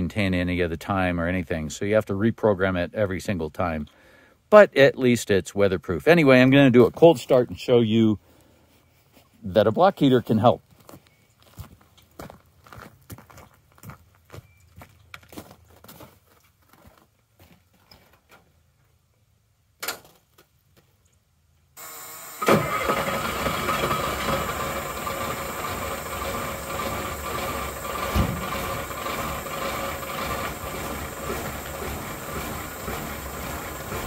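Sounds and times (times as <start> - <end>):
footsteps: 10.7 - 18.4, 27.1 - 34.0
diesel truck engine starting and running: 21.8 - 34.0
door clunk: 28.1 - 28.4.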